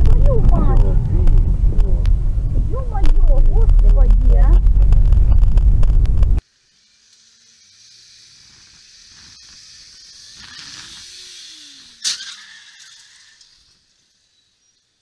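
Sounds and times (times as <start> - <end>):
faint city traffic: 0.0 - 5.0
engine note rising and falling: 0.0 - 6.4.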